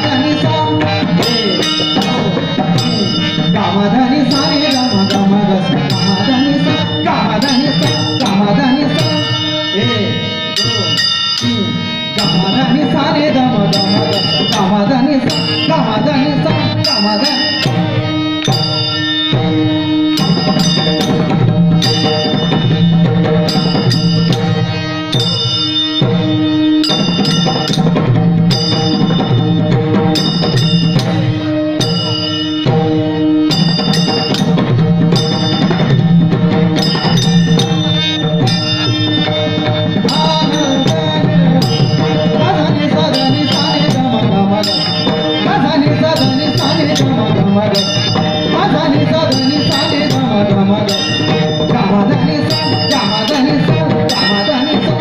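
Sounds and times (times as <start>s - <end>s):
hand drum: 0.0s - 55.0s
held melodic tones: 0.0s - 55.0s
small cymbals striking: 0.0s - 55.0s.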